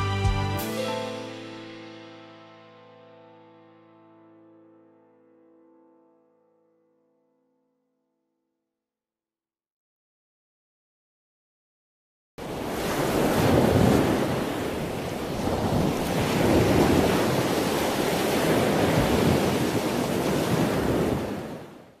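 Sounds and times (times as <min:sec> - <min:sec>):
waves breaking on beach: 0:12.4 - 0:22.0.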